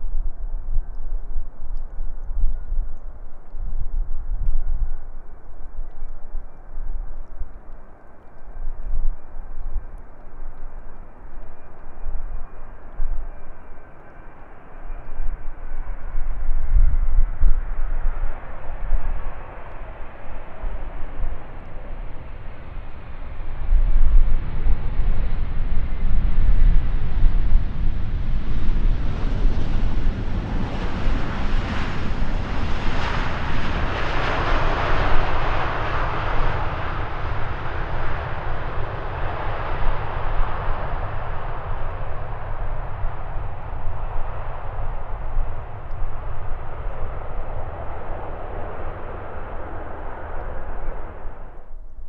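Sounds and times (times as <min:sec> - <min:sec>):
jet airliner flying past: 0:11.1 - 0:51.8.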